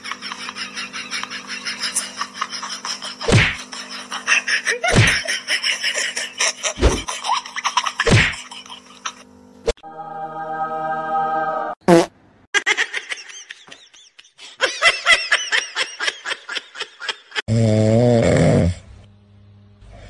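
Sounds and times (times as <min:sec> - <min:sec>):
background music: 0:09.8 - 0:11.8.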